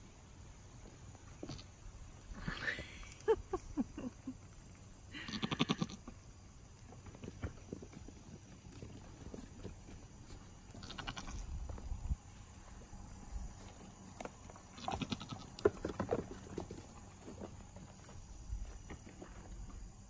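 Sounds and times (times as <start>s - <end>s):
goat kids bleating: 5.1s - 6.1s, 10.7s - 11.5s, 14.7s - 15.6s
hooves tapping on wooden boards: 13.6s - 19.6s.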